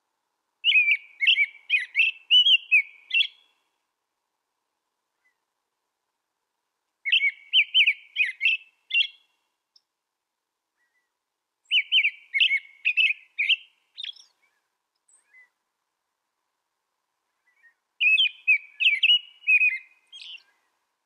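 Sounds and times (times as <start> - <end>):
robin singing: 0.6 - 3.8, 7.0 - 9.9, 10.8 - 15.6, 17.3 - 21.0.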